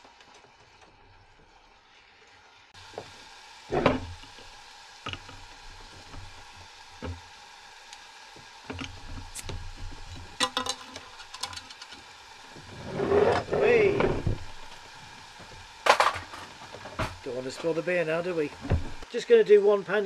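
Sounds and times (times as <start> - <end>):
chicken sizzling in a frying pan: 0.0 - 20.0.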